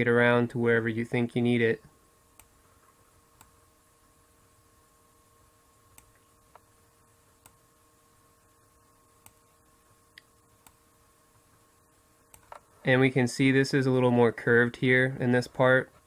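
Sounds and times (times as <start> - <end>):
faint steady hum: 0.0 - 16.0
computer mouse clicks: 10.1 - 10.8.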